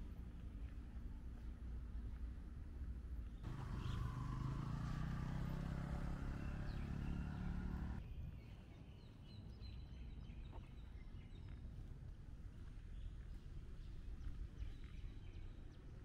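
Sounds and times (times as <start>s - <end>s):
motorcycle engine running: 3.4s - 8.0s
faint bird chirps: 3.4s - 10.7s.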